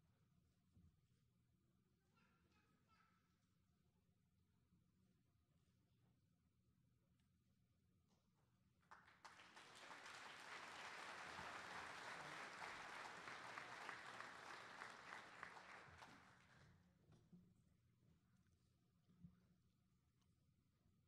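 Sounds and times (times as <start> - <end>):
audience applauding: 8.9 - 16.6.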